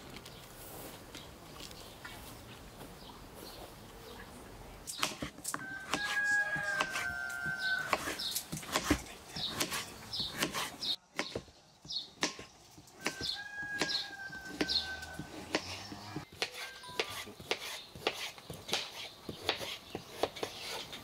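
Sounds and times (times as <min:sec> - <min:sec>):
rooster crowing: 0:05.5 - 0:08.2, 0:13.0 - 0:15.7.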